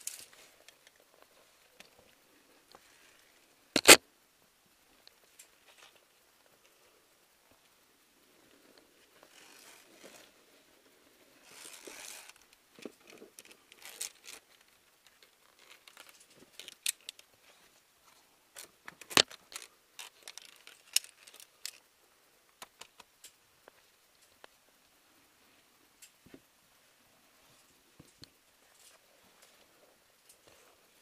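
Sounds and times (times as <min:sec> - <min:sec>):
metallic carabiner clicks: 0:03.8 - 0:04.0
clothing scraping against rock: 0:09.2 - 0:10.4, 0:11.4 - 0:12.4.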